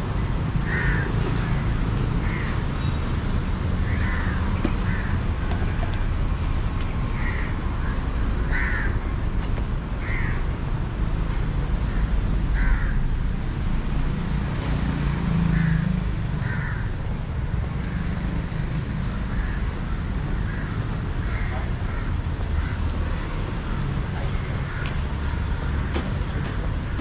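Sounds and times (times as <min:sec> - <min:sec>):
crow cawing: 0:00.6 - 0:01.6, 0:02.2 - 0:02.6, 0:03.8 - 0:05.3, 0:07.2 - 0:09.0, 0:10.0 - 0:10.4, 0:11.9 - 0:13.1, 0:15.5 - 0:17.0, 0:19.2 - 0:25.9.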